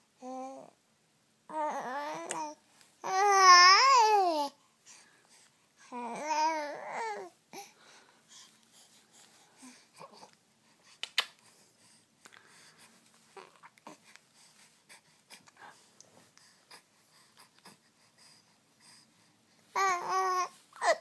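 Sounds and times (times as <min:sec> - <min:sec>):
baby cooing: 0:01.5 - 0:04.6, 0:05.9 - 0:07.3, 0:13.4 - 0:14.0, 0:19.7 - 0:21.0.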